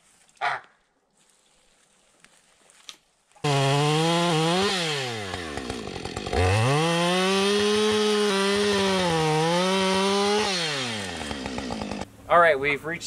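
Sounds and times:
chainsaw cutting wood: 3.4s - 12.1s.

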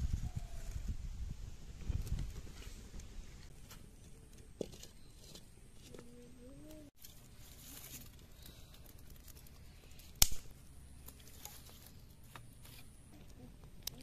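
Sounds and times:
firewood cracking: 7.0s - 12.7s.

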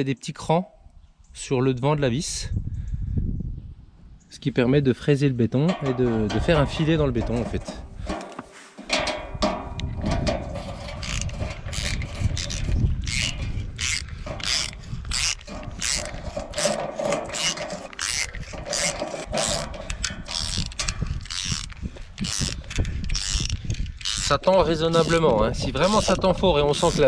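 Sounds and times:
screw grinding into concrete: 5.6s - 27.0s
ratchet wrench clicking: 11.0s - 25.2s.

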